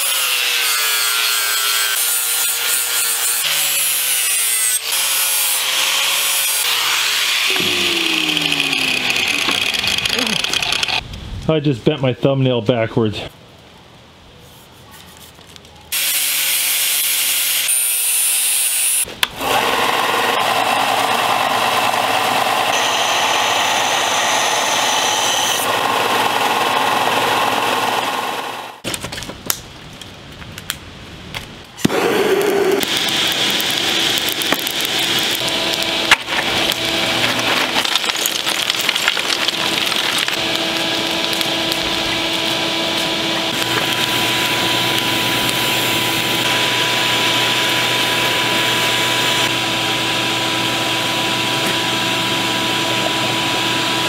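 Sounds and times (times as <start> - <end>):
angle grinder grinding steel: 0.0 - 11.0, 18.9 - 28.8, 31.8 - 54.0.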